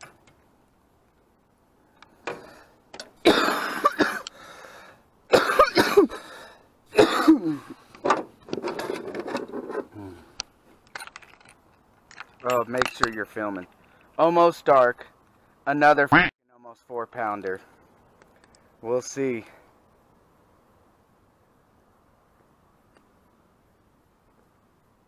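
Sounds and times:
man coughing: 0:03.2 - 0:04.3, 0:05.3 - 0:06.2, 0:07.0 - 0:07.8
man clearing his throat: 0:03.3 - 0:04.2, 0:05.3 - 0:06.1, 0:07.0 - 0:07.8.

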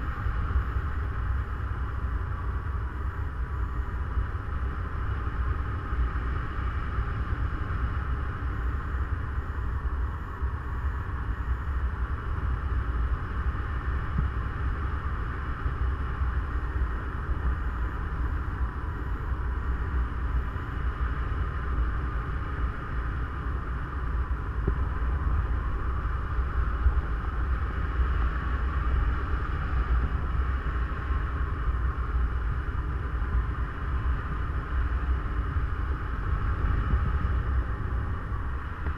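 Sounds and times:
wind buffeting microphone: 0:24.4 - 0:38.9.

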